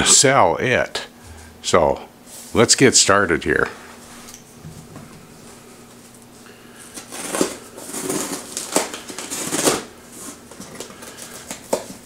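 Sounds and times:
packing tape peeling off cardboard: 6.8 - 12.0.

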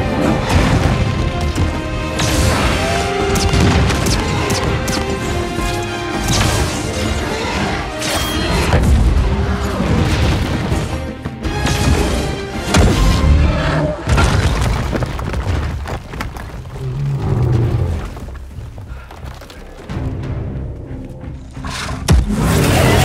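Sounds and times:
orchestral film music: 0.0 - 14.2, 16.8 - 23.0
crash with falling rubble: 14.1 - 16.6.

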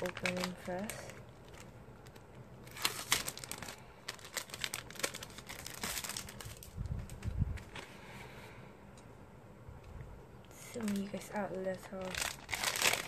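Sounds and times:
packaging crinkling and crackling: 0.0 - 8.0, 10.5 - 13.0.

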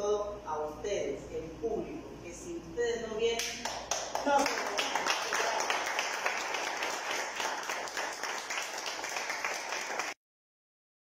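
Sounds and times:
crowd applauding: 3.7 - 10.2.

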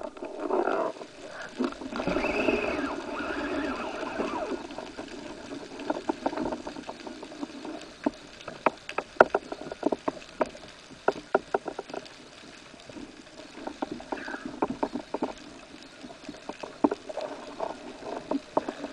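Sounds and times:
low hiss of water: 0.0 - 18.9
underwater clicks and taps: 5.7 - 12.5.

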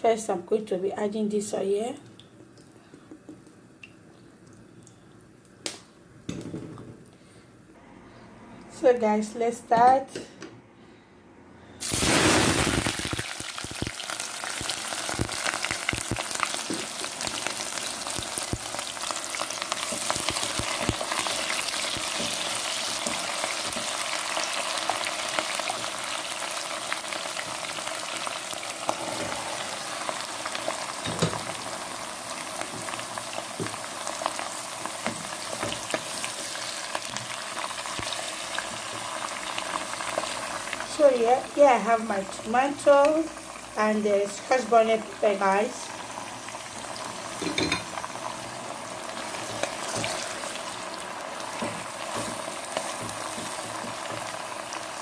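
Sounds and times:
vegetables sizzling in hot oil: 11.8 - 55.0.

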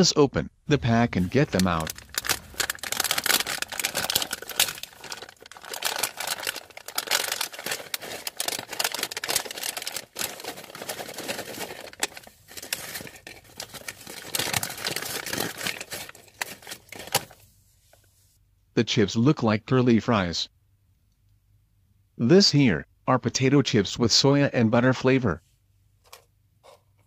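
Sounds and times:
foil snack bag crinkling: 0.8 - 17.4
chips crackling onto table: 1.3 - 13.6.

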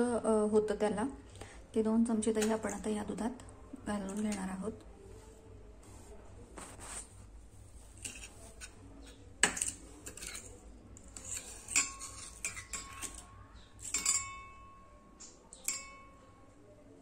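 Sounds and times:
spoon clinking against metal pot: 8.0 - 16.4.

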